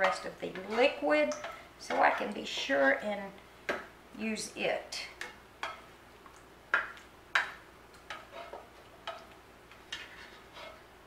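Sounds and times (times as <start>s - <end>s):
spoon scraping enamel pan: 0.0s - 2.7s, 8.1s - 10.8s.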